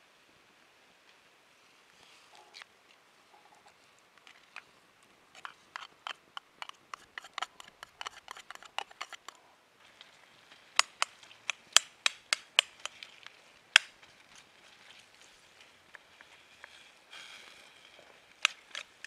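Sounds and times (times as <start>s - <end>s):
metal taps and scrapes of tin can: 5.4s - 9.4s, 10.8s - 13.0s.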